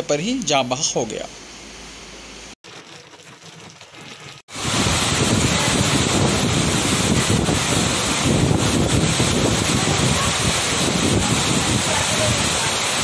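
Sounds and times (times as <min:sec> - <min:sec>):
heavy rain: 0:04.5 - 0:13.0
storm wind on microphone: 0:04.5 - 0:13.0.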